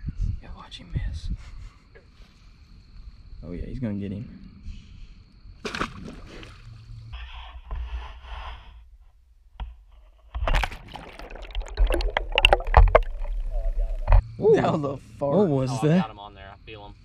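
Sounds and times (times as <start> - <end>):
spear striking water: 5.6 - 6.7, 10.4 - 14.2
churning splashes in mud: 5.6 - 6.8, 10.4 - 14.2.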